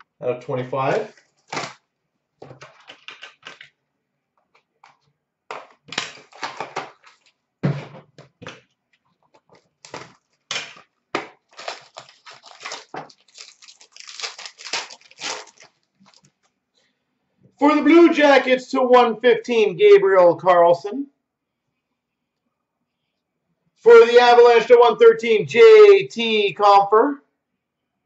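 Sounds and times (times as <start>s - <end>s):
cardboard and wrappers tearing: 1.0s - 1.8s, 5.5s - 7.4s, 9.4s - 16.3s.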